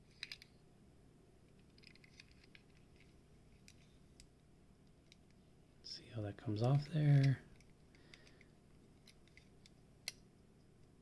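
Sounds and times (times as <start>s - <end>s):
faint clicks of handling toy: 0.1s - 0.6s, 1.5s - 5.4s, 6.6s - 11.0s.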